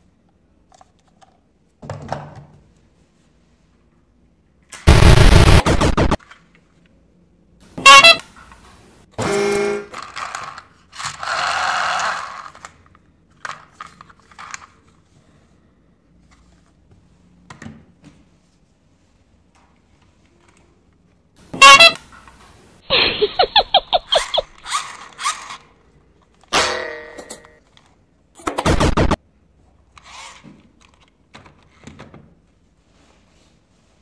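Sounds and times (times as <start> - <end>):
short horn toot: 7.8 - 8.2, 21.6 - 22.0.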